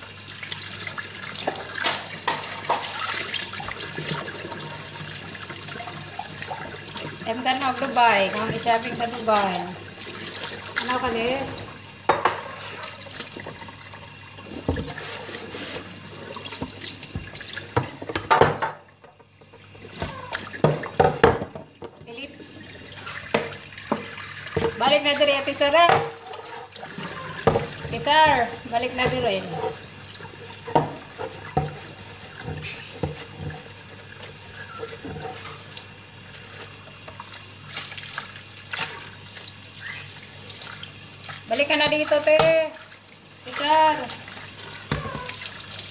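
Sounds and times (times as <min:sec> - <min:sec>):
tap running into sink: 0:01.4 - 0:09.8, 0:14.4 - 0:36.0, 0:41.1 - 0:42.8, 0:44.1 - 0:45.9
knocks against basin: 0:20.0 - 0:22.0
knocks of things in basin: 0:20.0 - 0:22.1, 0:27.1 - 0:29.8, 0:42.2 - 0:42.6.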